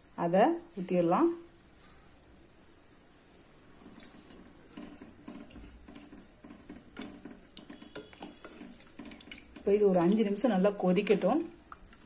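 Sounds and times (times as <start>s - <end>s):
spatula stirring gravy in pot: 3.8s - 12.0s.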